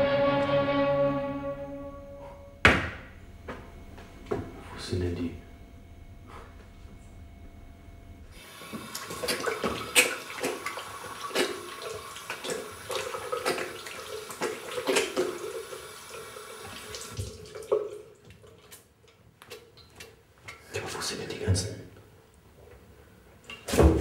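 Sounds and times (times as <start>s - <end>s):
tap water running into basin: 8.4s - 18.8s
water splashing on face: 8.6s - 15.8s
small clicks and drips: 16.6s - 20.6s.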